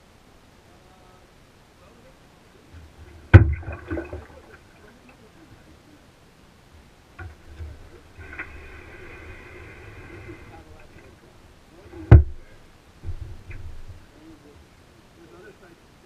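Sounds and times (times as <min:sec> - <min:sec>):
paddle knocking on metal canoe hull: 0:03.3 - 0:04.2.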